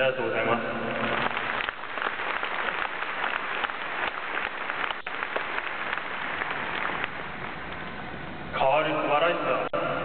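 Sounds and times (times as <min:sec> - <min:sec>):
crowd applauding: 0:01.0 - 0:07.6.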